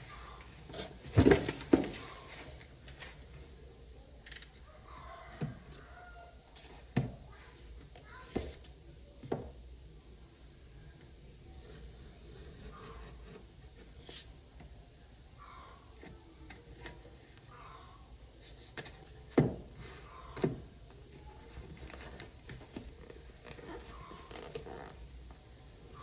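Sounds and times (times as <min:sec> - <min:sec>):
cardboard box rustling: 0:00.6 - 0:02.5.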